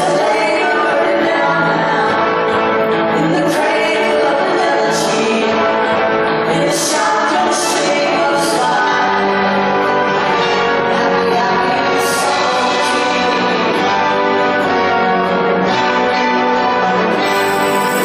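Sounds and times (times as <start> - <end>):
women singing: 0.0 - 2.3, 3.2 - 5.8, 6.5 - 9.5, 11.0 - 13.5
electric guitars: 0.0 - 18.0.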